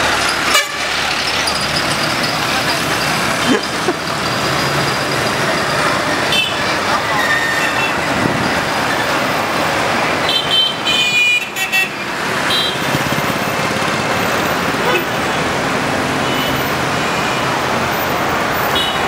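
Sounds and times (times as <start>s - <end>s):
street traffic: 0.0s - 19.0s
car horns honking: 0.5s - 1.0s, 6.2s - 8.1s, 10.2s - 13.1s, 16.1s - 17.7s, 18.6s - 19.0s.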